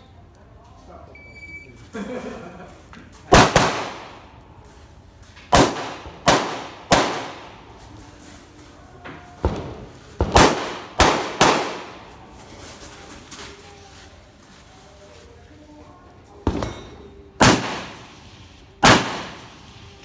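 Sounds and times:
carbine gunshots: 0:03.3 - 0:04.2, 0:05.5 - 0:07.6, 0:10.2 - 0:12.1, 0:17.4 - 0:19.8.

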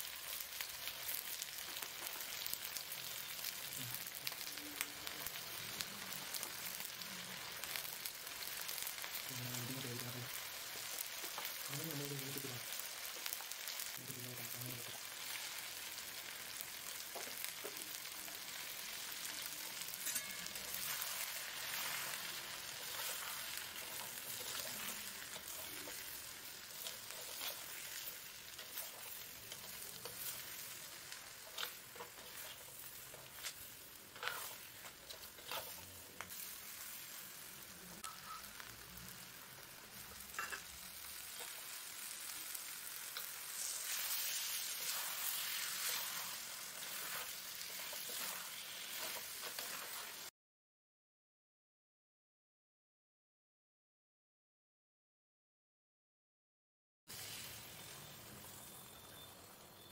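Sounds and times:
vegetables sizzling in oil: 0:00.0 - 0:50.3, 0:57.1 - 0:59.9
spatula scraping pot: 0:31.4 - 0:36.0, 0:43.6 - 0:50.1.

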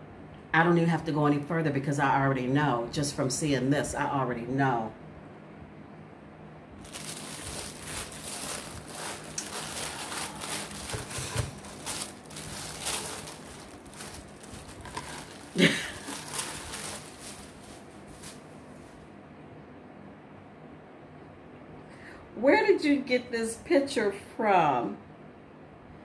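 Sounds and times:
woman's voice: 0:00.6 - 0:05.0, 0:22.4 - 0:25.0
tissue paper rustling: 0:06.8 - 0:19.0.

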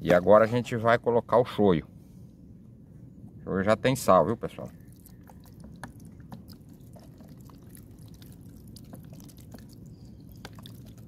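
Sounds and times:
sauce dripping: 0:04.8 - 0:11.0.

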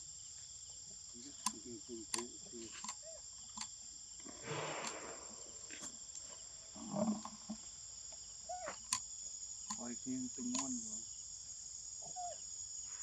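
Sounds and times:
forest insects droning: 0:00.0 - 0:13.0
sharp clicks: 0:01.3 - 0:03.7, 0:04.7 - 0:05.1, 0:09.7 - 0:10.8.

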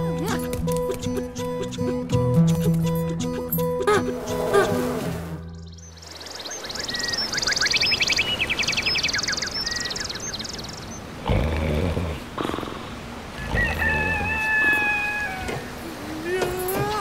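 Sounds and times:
cartoon birds chirping: 0:05.4 - 0:11.1.

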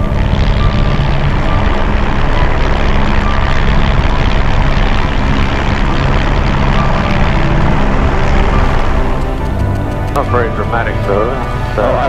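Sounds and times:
helicopter engine and rotor: 0:00.0 - 0:12.0
steady tones: 0:00.0 - 0:12.0.

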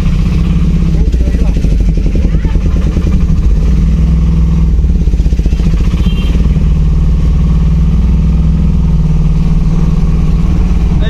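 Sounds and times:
small engine chugging: 0:00.0 - 0:11.0.

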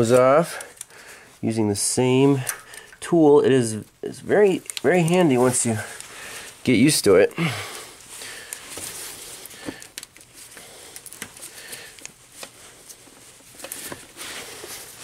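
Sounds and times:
rustling: 0:03.6 - 0:15.0.

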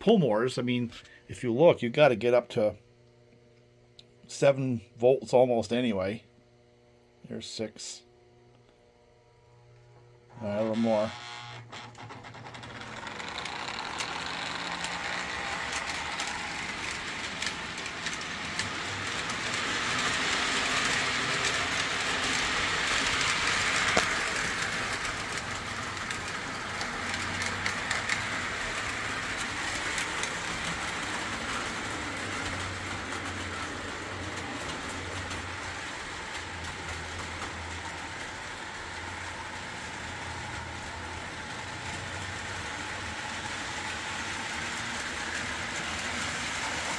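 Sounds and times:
toy train motor hum: 0:10.4 - 0:46.9
wheels clicking over rails: 0:10.5 - 0:46.9.

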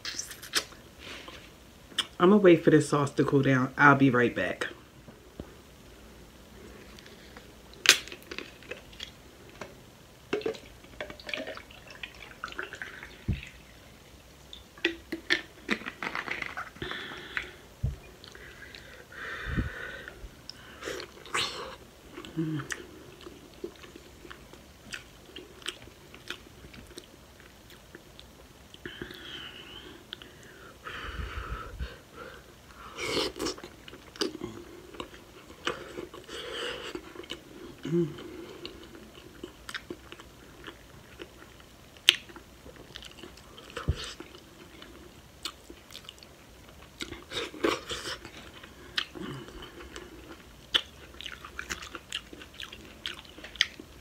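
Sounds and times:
wet bite into food: 0:00.0 - 0:00.8
wet mouth clicks: 0:00.0 - 0:00.8.

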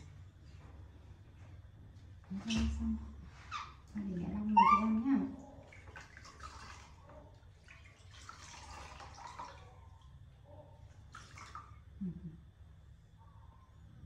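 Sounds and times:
water splashing and trickling: 0:03.9 - 0:12.0.

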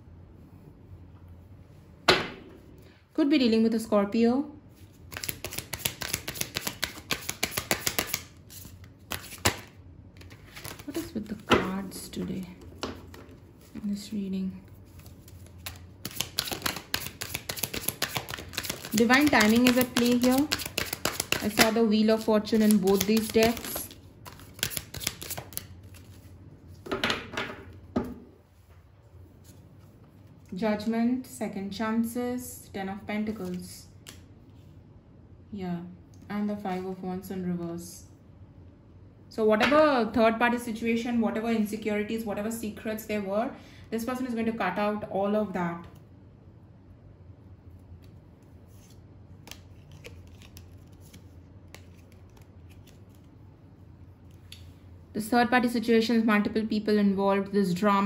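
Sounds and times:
cards being shuffled: 0:04.8 - 0:13.8, 0:14.6 - 0:26.8, 0:47.7 - 0:53.4.

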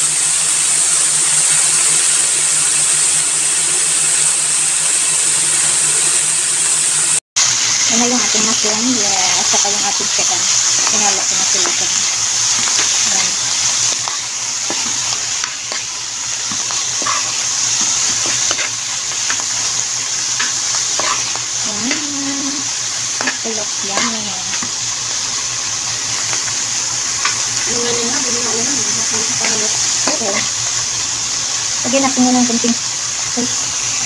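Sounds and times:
food sizzling in a frying pan: 0:00.0 - 0:34.0
spatula scraping a pan: 0:08.2 - 0:24.8.

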